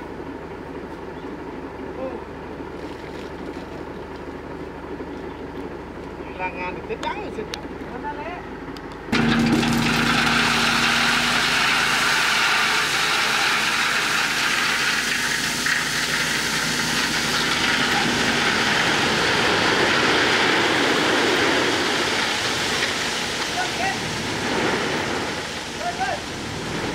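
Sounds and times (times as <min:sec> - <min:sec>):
truck engine revving: 0:09.1 - 0:26.9
crushed stone pouring: 0:09.2 - 0:23.4.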